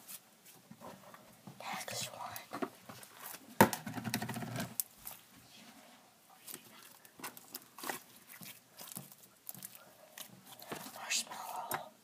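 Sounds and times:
fingers squishing slime: 0:06.6 - 0:11.8.

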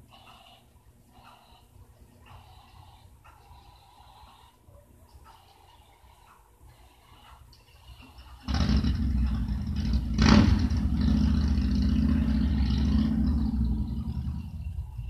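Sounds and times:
model train rumbling on track: 0:08.5 - 0:15.0.

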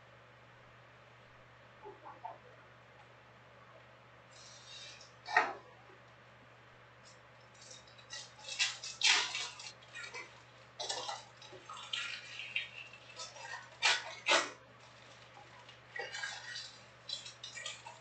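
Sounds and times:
foil wrappers crinkling: 0:07.5 - 0:18.0.

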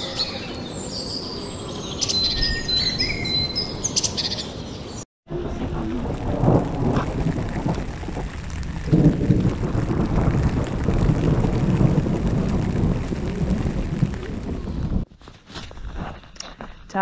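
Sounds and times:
steady rain: 0:05.3 - 0:15.1
thunder rumbling: 0:05.3 - 0:15.1.

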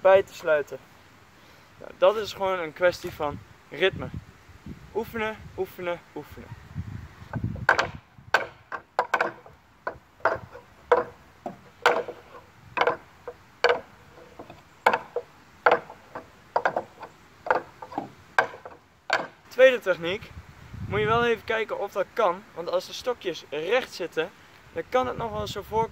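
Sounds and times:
rings knocking on wooden pegs: 0:07.3 - 0:19.5.

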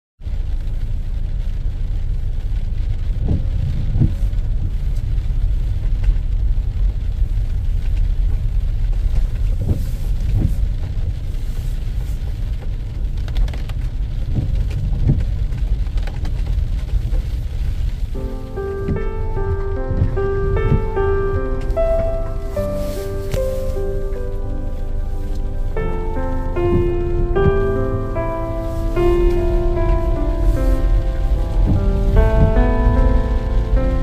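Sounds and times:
car engine and tyres rumbling: 0:00.2 - 0:34.0.

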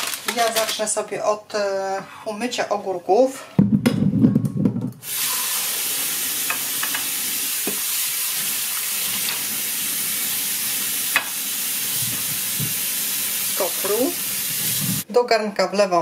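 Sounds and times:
tap water running: 0:05.0 - 0:15.0.

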